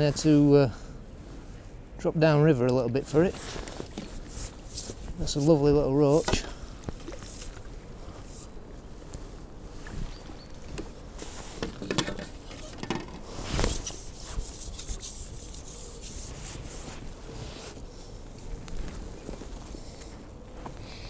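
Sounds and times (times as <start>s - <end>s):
rustling and light knocks: 3.3s - 5.6s, 9.8s - 15.0s.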